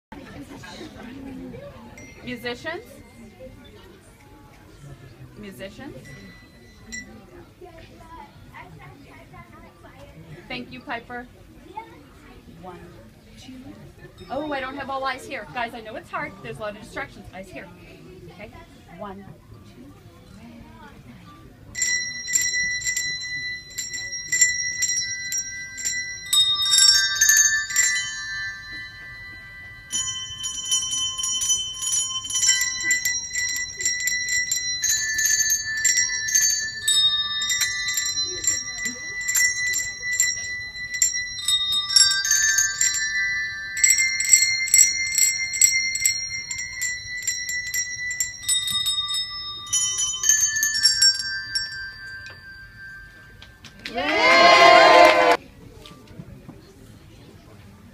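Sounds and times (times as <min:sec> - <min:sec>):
handbells ringing a tune: 0:00.4 - 0:09.4, 0:13.8 - 0:17.0, 0:21.6 - 0:55.4.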